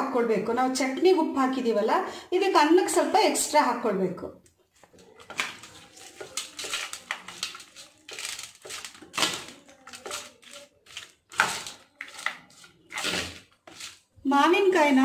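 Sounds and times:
spoon scraping steel plate: 9.9s - 14.1s.

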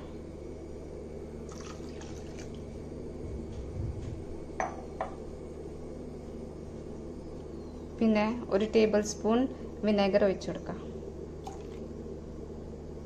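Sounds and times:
steady low hum: 0.0s - 13.0s
milk pouring and splashing: 1.5s - 2.6s.

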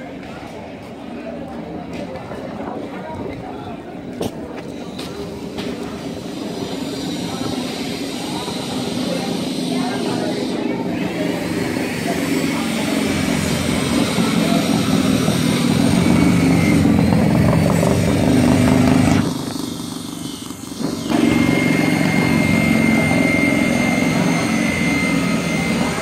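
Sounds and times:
thin high whine: 5.4s - 26.0s
motor running: 6.0s - 26.0s.

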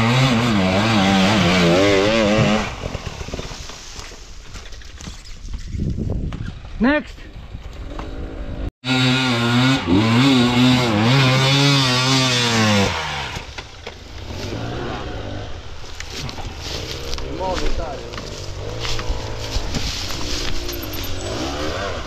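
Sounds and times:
dirt bike engine revving: 0.0s - 3.2s, 7.8s - 22.0s.

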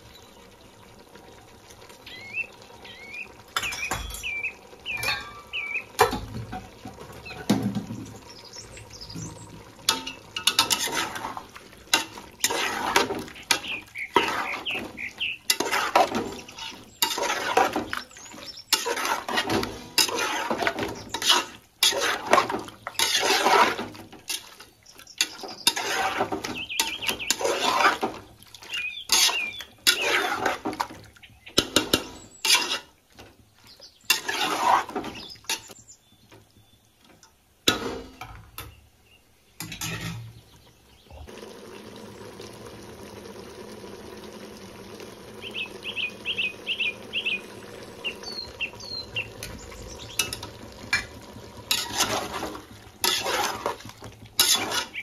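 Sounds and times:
water sloshing: 1.7s - 36.6s, 39.6s - 55.0s
pots and utensils clattering: 3.4s - 8.3s, 9.0s - 33.4s, 34.1s - 35.8s, 37.1s - 38.7s, 39.6s - 40.5s, 49.2s - 55.0s.

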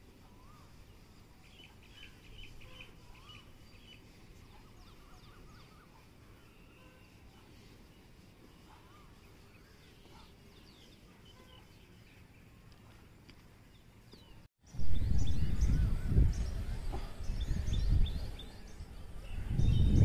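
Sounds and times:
birds chirping: 0.2s - 20.0s
wind buffeting microphone: 14.7s - 20.0s.

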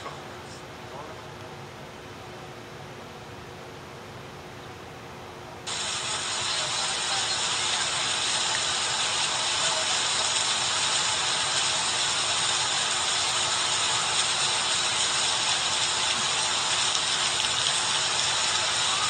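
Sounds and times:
floodwater rushing: 5.7s - 19.0s.

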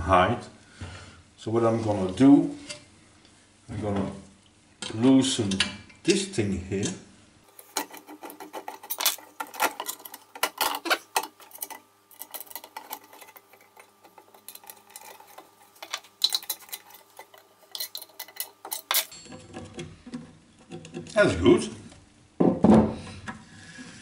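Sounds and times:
roller chain clinking: 7.6s - 19.4s.

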